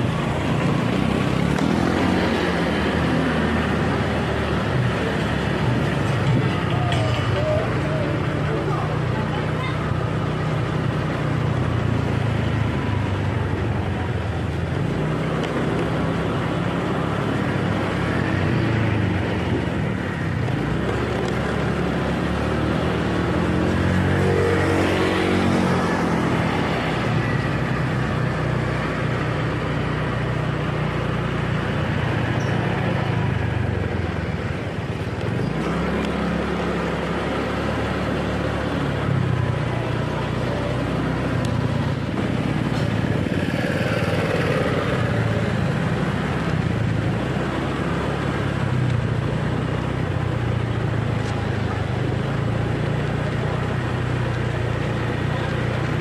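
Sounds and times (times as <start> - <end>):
wind and road noise: 0.0 - 56.0
small motorcycle engine running: 30.9 - 56.0.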